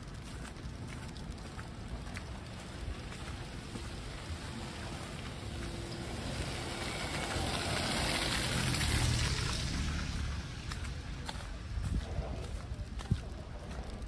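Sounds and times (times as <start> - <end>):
car engine rumble: 0.0 - 14.0
tyres hissing through wet snow: 2.2 - 11.1.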